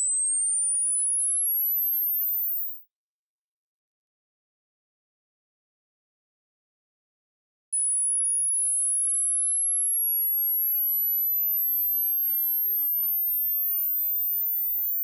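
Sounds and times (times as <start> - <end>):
high-pitched rising sine tone: 0.0 - 2.8.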